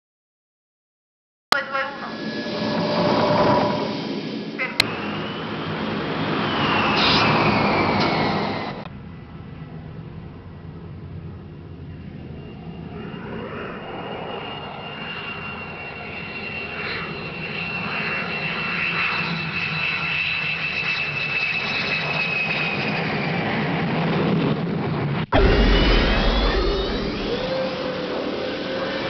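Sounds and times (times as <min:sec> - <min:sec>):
engine with jet-like whine: 0:01.8 - 0:29.0
deeper engine sound: 0:25.4 - 0:29.0.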